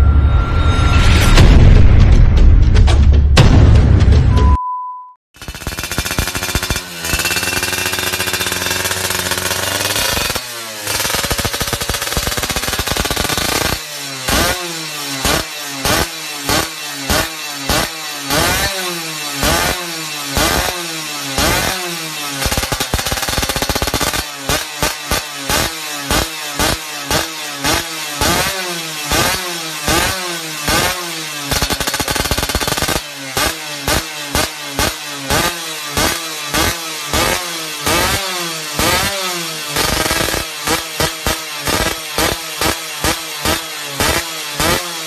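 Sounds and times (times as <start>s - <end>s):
exhaust crackling rattle: 5.4s - 14.4s
two-stroke engine revving: 5.4s - 45.0s.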